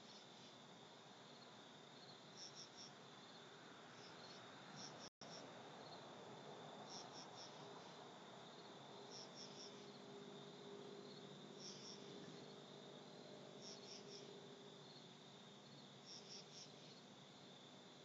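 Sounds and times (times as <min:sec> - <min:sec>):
insects chirping: 0:00.0 - 0:18.0
steady high insect trill: 0:00.0 - 0:18.0.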